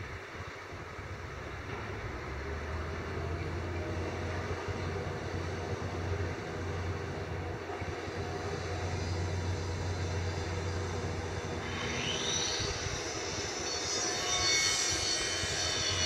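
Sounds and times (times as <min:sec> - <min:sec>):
excavator diesel engine running: 0:01.0 - 0:13.6
rising whine: 0:01.6 - 0:16.0.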